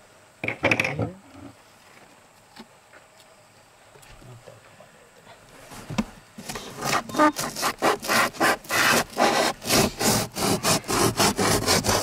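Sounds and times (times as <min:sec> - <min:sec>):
saw cutting: 0:06.5 - 0:12.0.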